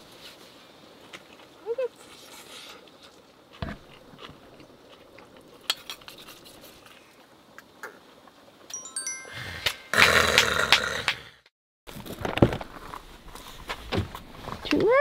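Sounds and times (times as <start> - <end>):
soft chewing: 1.0 - 7.7.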